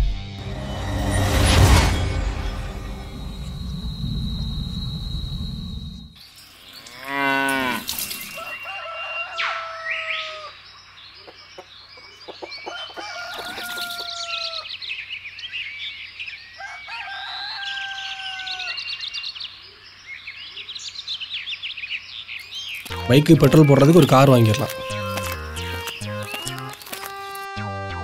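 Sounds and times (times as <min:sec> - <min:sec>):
small birds chirping: 0:04.7 - 0:16.8, 0:17.5 - 0:27.5
rooster crowing: 0:07.2 - 0:10.6, 0:12.6 - 0:14.7, 0:16.6 - 0:19.0.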